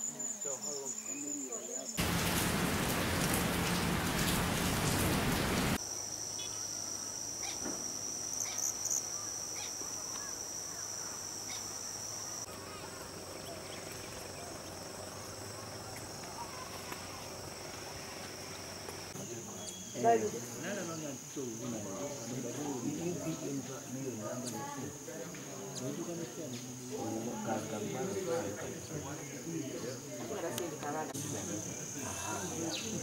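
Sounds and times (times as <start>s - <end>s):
insects trilling: 0.0s - 33.0s.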